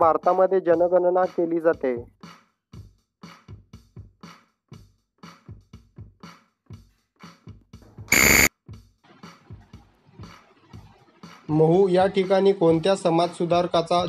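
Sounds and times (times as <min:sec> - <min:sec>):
loud buzzer: 0:08.1 - 0:08.5.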